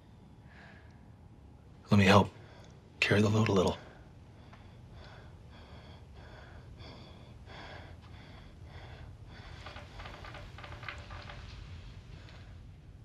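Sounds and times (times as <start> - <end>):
boy breathing unevenly: 4.0 - 11.2.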